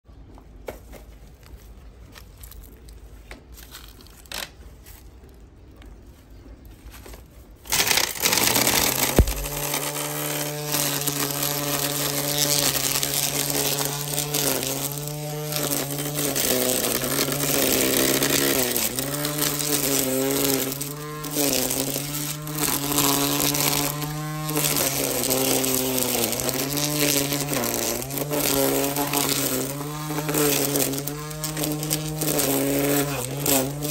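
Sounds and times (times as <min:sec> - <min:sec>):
string trimmer buzzing whine: 0:07.6 - 0:33.9.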